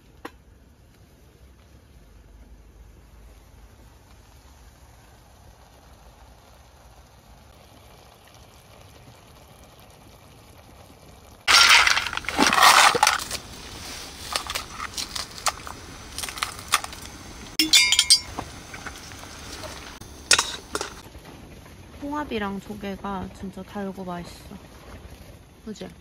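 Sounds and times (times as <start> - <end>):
glass bottle clinking: 11.5 - 13.4, 14.3 - 18.9, 20.3 - 21.0
shells clattering against metal pan: 11.5 - 13.4, 14.2 - 18.9, 20.3 - 21.0.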